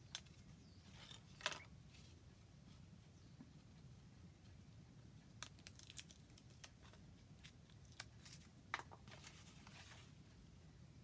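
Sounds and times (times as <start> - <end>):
tape rustling: 5.4 - 10.2.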